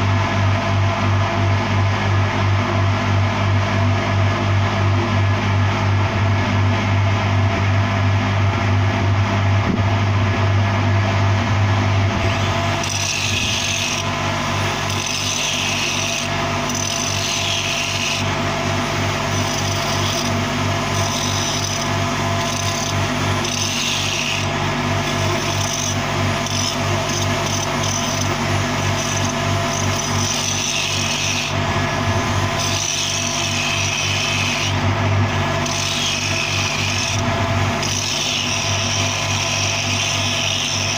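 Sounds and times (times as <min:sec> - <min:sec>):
angle grinder grinding steel: 0:12.2 - 0:40.9.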